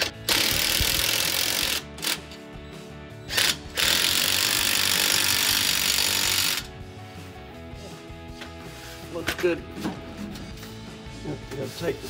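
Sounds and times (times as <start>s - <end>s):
cordless drill spinning: 0.0s - 2.2s, 3.3s - 6.7s.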